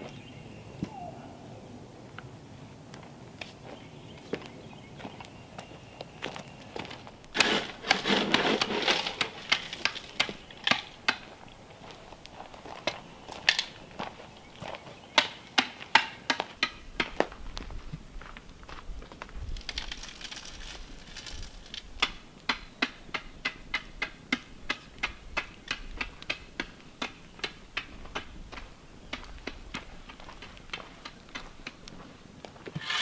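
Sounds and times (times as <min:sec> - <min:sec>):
scraping in dirt: 0:06.4 - 0:14.9, 0:19.6 - 0:21.9, 0:32.5 - 0:33.0
steel bar striking rocky ground: 0:07.4 - 0:11.3, 0:32.7 - 0:33.0.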